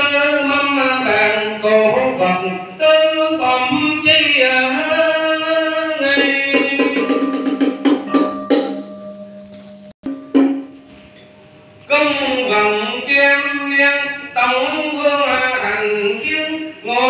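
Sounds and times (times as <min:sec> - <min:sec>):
drum and wood-block strikes: 0:03.6 - 0:05.3, 0:06.0 - 0:11.3
sliding wavering melody: 0:08.1 - 0:11.4.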